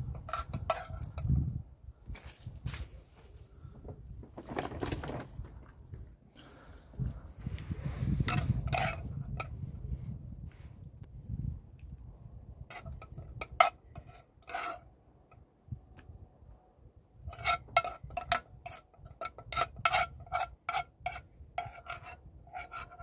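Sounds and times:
metal spoon scraping metal pan: 0.0s - 1.4s, 7.7s - 9.6s, 12.7s - 14.8s, 17.2s - 23.0s.

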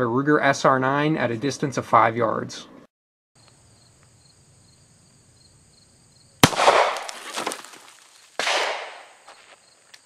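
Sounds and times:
pistol shot with echo: 6.4s - 7.1s, 8.4s - 9.2s
sharp bang: 6.4s - 7.1s.

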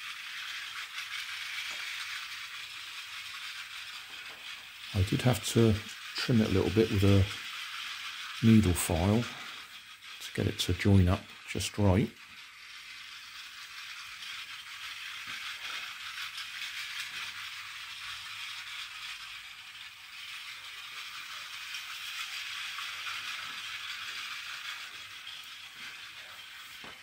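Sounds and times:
toy train motor whirring: 0.0s - 27.0s.

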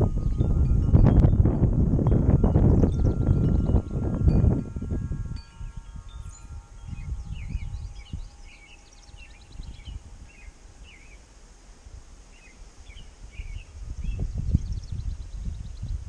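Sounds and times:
wind buffeting microphone: 0.0s - 11.0s, 12.8s - 16.0s
wind chime tones: 0.0s - 11.3s
small birds chirping: 2.5s - 4.4s, 6.1s - 11.3s, 12.3s - 16.0s.

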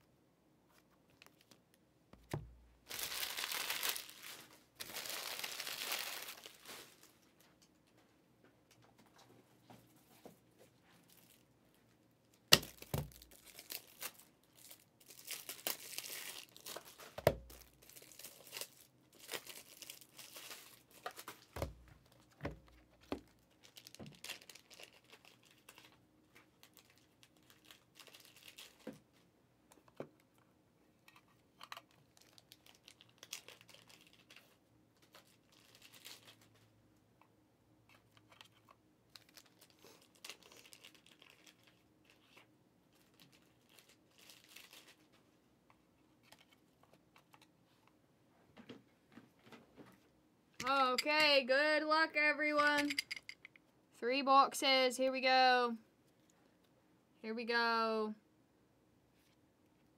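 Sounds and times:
card pack wrappers crinkling: 2.2s - 7.2s, 12.5s - 22.4s, 23.0s - 28.9s, 31.8s - 36.6s, 39.1s - 45.1s.

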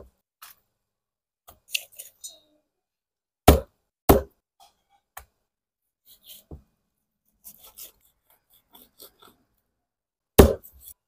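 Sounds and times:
cleaver cutting raw chicken: 7.4s - 9.5s.

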